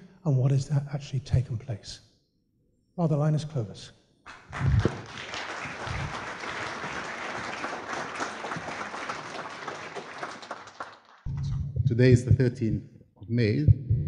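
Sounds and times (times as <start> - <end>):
audience applauding: 4.3 - 11.3
low thumps: 4.5 - 5.0, 13.5 - 14.0.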